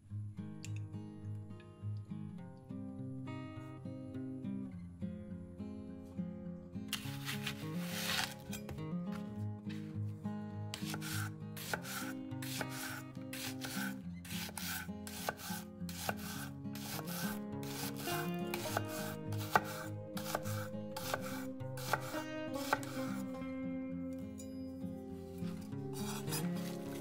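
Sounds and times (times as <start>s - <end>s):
soft background music: 0.2s - 27.0s
knife chopping on cutting board: 10.8s - 23.0s, 26.0s - 26.8s.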